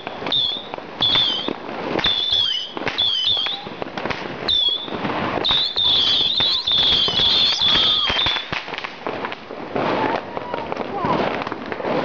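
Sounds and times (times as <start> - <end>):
firework whistles: 0.0 - 9.0
fireworks crackling and banging: 0.0 - 12.0.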